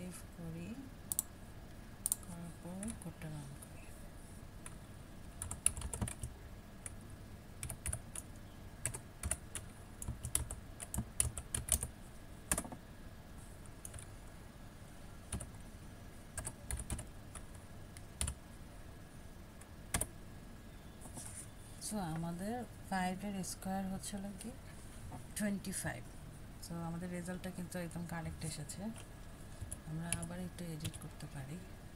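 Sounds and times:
computer keyboard typing: 1.1s - 1.3s, 2.0s - 3.0s, 5.4s - 7.0s, 7.6s - 11.9s, 12.5s - 12.8s, 13.8s - 14.1s, 15.3s - 15.6s, 16.4s - 18.4s, 19.9s - 20.1s, 28.9s - 31.1s.

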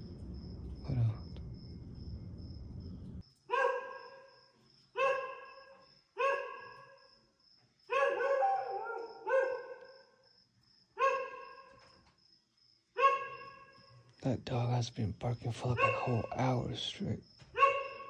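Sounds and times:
dog barking: 3.5s - 4.3s, 5.0s - 7.0s, 7.9s - 10.0s, 11.0s - 11.8s, 13.0s - 13.7s, 15.6s - 16.5s, 17.5s - 18.0s.

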